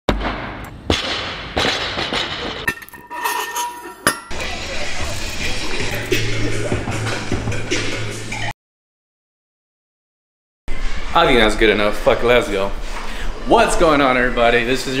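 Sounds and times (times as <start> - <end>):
music with steady bass line: 4.3 - 8.5.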